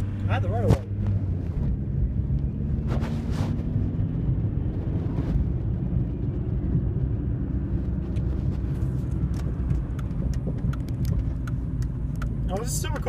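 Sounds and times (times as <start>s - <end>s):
car engine rumble: 0.0s - 13.0s.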